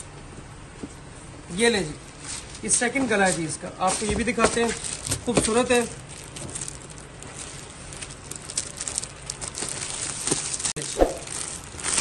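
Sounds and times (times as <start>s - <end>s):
plastic packaging crinkling: 3.3s - 12.0s.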